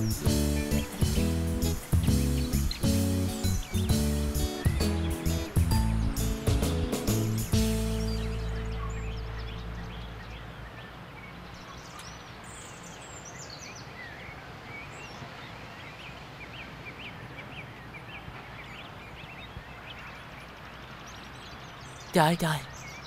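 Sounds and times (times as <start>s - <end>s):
birds chirping: 0.0s - 23.0s
steady outdoor hiss: 0.0s - 23.0s.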